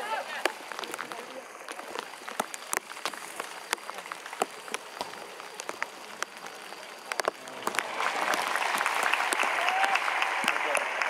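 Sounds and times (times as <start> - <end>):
heavy rain pattering: 0.0 - 11.0
stadium crowd clapping: 7.1 - 11.0.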